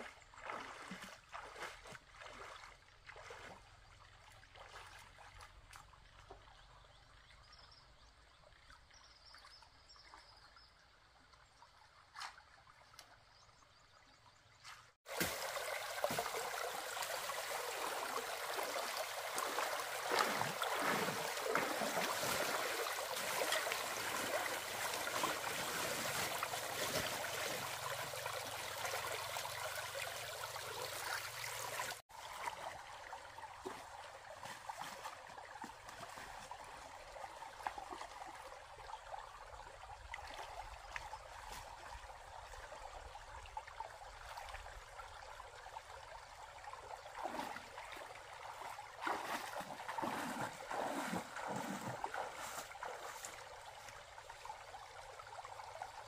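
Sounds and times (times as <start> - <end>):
faint splashing from wading: 0.0 - 56.0
stream water pouring over stones: 15.1 - 41.5, 43.8 - 56.0.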